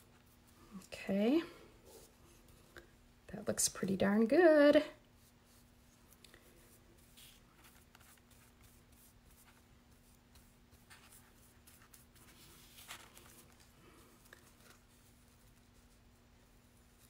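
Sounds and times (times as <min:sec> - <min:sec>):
faint steady hum: 0:00.0 - 0:17.0
brush rubbing on paper: 0:01.8 - 0:02.6, 0:05.1 - 0:17.0.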